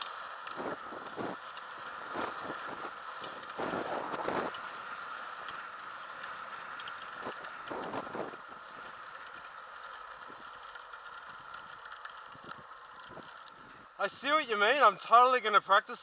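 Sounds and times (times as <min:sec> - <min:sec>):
light rattling clicks: 0:00.0 - 0:13.6
scooter tyres rolling on asphalt: 0:00.0 - 0:16.0
wind buffeting microphone: 0:00.5 - 0:04.6, 0:07.2 - 0:08.5.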